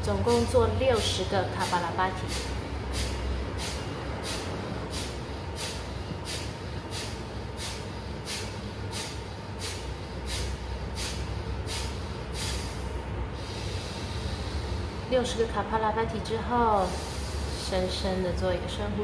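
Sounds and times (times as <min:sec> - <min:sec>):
forceful nasal exhalations: 0:02.2 - 0:15.1, 0:16.8 - 0:17.7.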